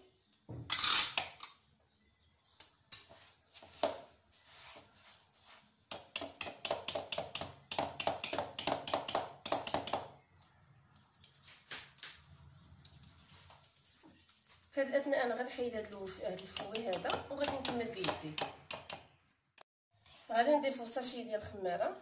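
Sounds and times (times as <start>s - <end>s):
sugar rustling into batter: 11.0s - 18.0s.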